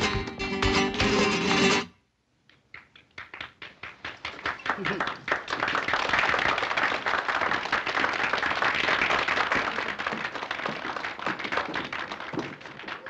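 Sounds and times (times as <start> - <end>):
crowd clapping along: 2.6 - 13.0.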